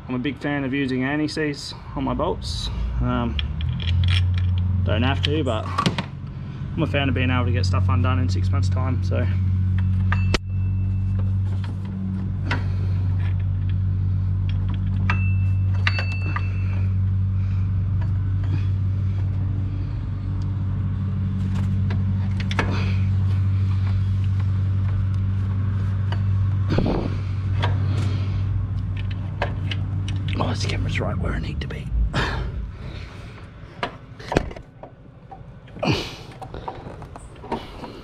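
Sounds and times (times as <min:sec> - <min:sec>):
steady low hum: 0:00.0 - 0:38.0
metal clinks and knocks: 0:03.4 - 0:06.1, 0:09.6 - 0:17.2.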